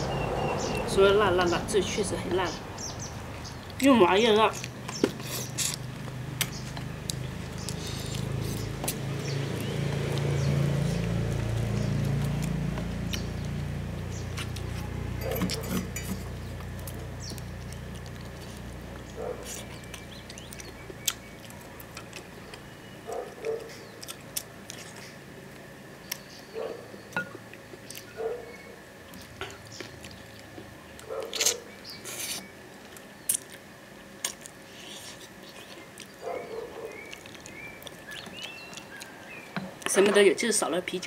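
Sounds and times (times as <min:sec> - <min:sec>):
person chewing food: 0:04.6 - 0:26.3, 0:27.2 - 0:39.9
lip smacks: 0:31.1 - 0:32.5, 0:34.2 - 0:39.3.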